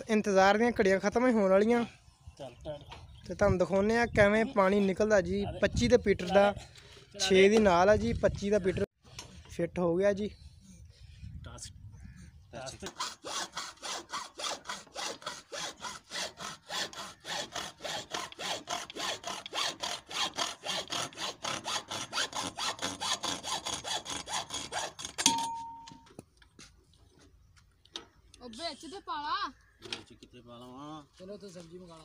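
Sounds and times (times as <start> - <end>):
hacksaw sawing: 12.8 - 25.4
sharp clack with ringing tone: 25.2 - 26.1.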